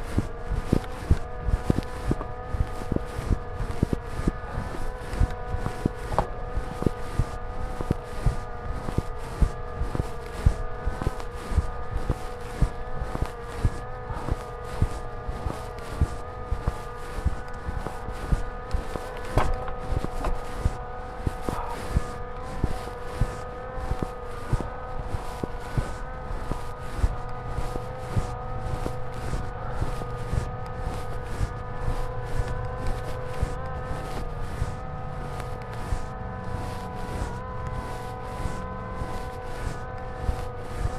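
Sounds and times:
drone propellers whining: 0.0s - 40.9s
bike knocks and rattles: 19.3s - 20.4s.

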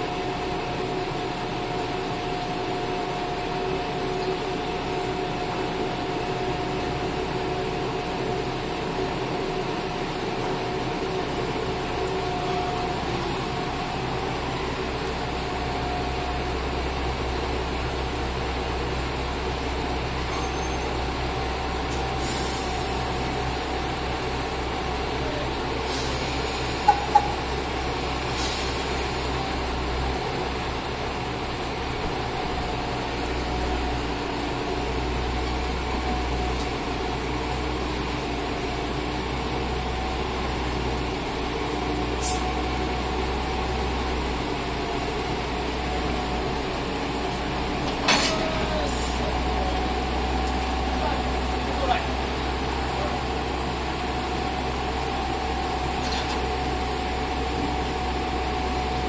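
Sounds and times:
diesel railcars idling: 0.0s - 59.0s
air brake hisses: 22.2s - 23.4s, 28.3s - 29.0s, 42.2s - 42.5s.

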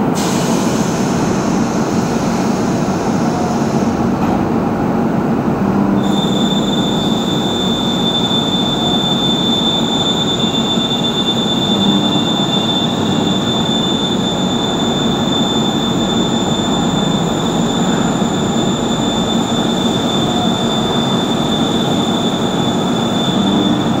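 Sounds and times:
high machine whine: 6.0s - 24.0s
machine running: 6.0s - 24.0s.

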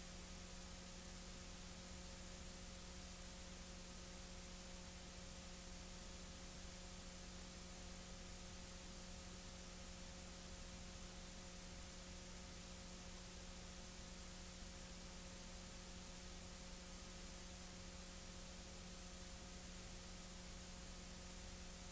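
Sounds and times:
low electrical hum: 0.0s - 21.9s.

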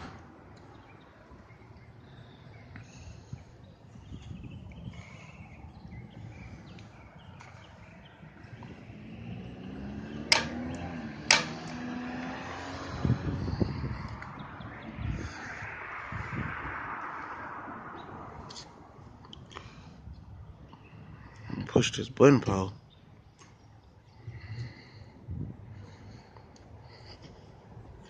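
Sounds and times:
vehicle engine driving past: 7.6s - 19.9s.

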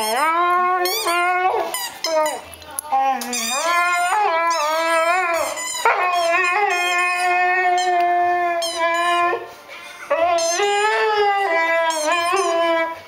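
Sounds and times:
dog whining howls: 3.1s - 9.5s, 10.1s - 13.0s.

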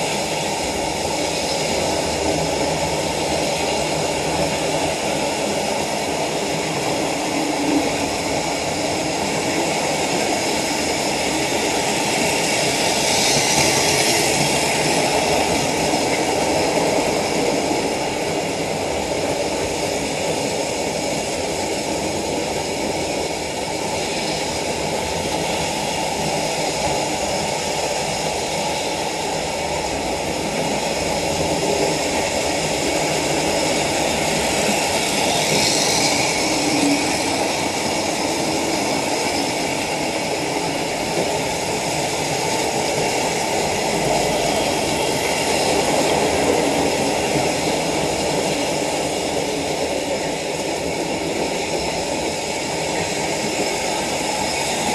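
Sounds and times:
model trains running on track: 0.0s - 54.9s.

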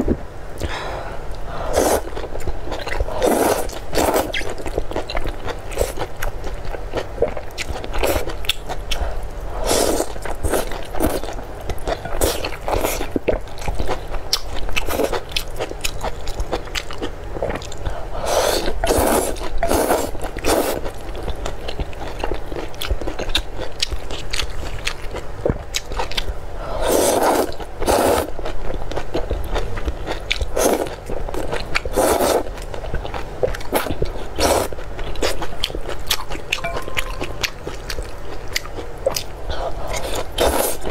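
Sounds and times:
slurping noodles: 3.2s - 4.3s, 18.2s - 20.9s, 26.8s - 28.3s, 31.9s - 32.5s, 39.9s - 40.9s.

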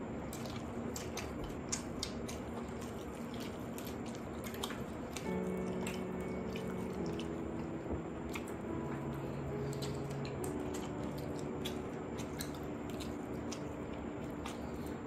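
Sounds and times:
wet chewing: 0.0s - 15.0s
mouth clicks and smacks: 0.3s - 5.3s.

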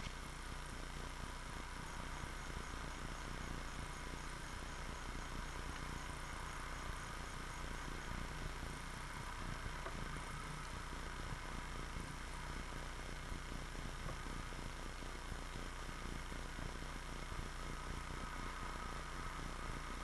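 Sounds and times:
high insect chirps: 0.0s - 14.8s
low electrical hum: 0.0s - 20.0s
microphone hiss: 0.0s - 20.0s.

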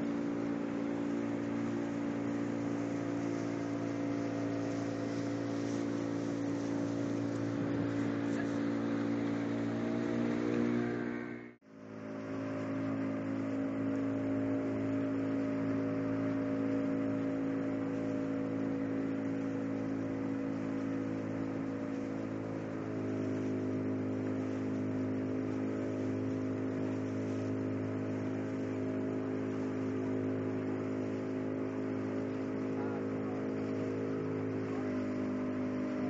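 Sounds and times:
steady hiss: 0.0s - 10.6s, 11.9s - 36.0s
speedboat engine droning: 0.0s - 36.0s.

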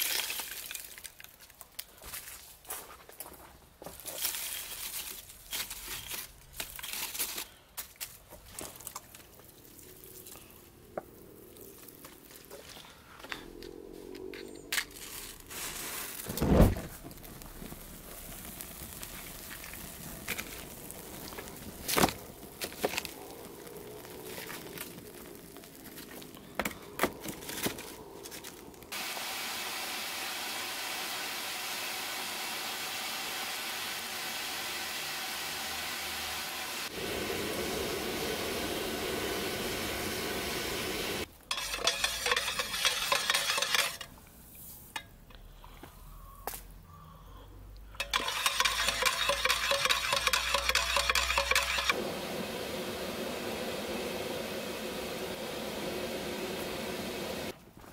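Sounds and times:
oil sizzling: 0.0s - 1.3s, 14.9s - 26.4s, 28.9s - 45.0s, 48.0s - 57.6s
kindling crackling and popping: 13.3s - 29.0s
matches flaring: 14.7s - 29.0s, 36.8s - 44.1s, 48.0s - 52.1s.

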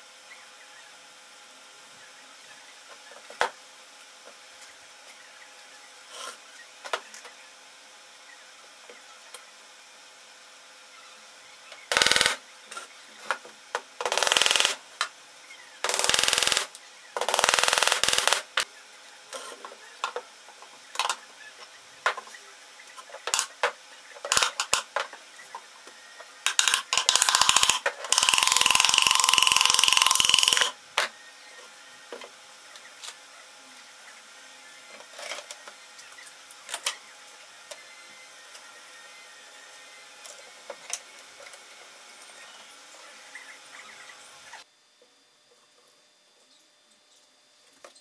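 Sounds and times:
machine running loudly: 15.8s - 19.4s, 25.6s - 32.2s.

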